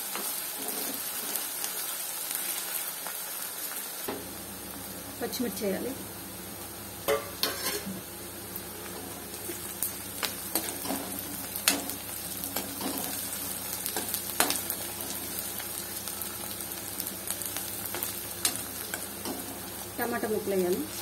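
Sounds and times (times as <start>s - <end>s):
onions sizzling in hot oil: 0.0s - 21.0s
steel ladle scraping a pan: 7.1s - 8.0s.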